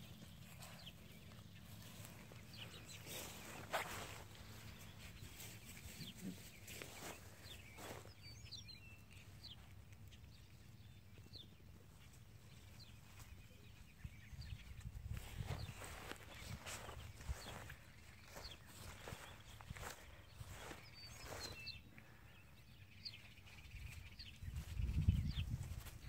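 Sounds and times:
rustling in grass: 0.0 - 8.4, 14.6 - 22.2, 23.4 - 26.0.

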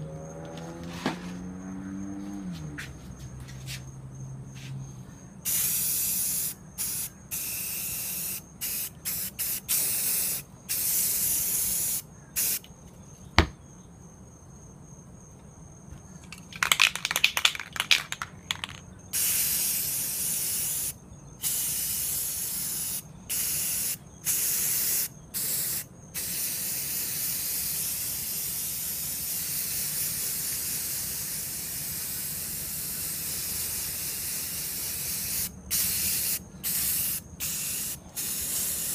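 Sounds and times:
aerosol spray paint hissing: 5.4 - 12.7, 19.1 - 38.9.

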